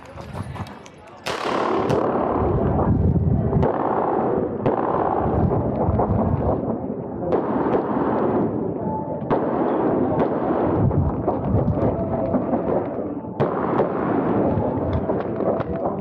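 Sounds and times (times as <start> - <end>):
pistol shots: 1.2 - 2.9, 3.6 - 5.8, 7.3 - 8.6, 12.6 - 16.0.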